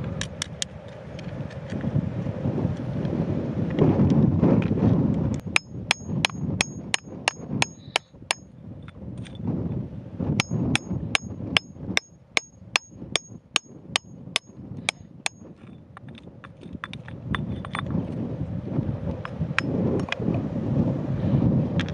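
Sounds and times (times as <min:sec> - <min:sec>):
hammer striking steel chisel: 0:05.4 - 0:08.5, 0:10.4 - 0:15.5.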